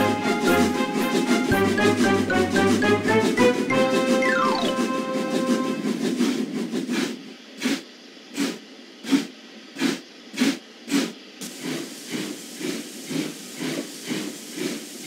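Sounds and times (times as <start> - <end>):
steam locomotive chuffing: 0.0 - 15.0
steady steam hiss: 4.8 - 15.0.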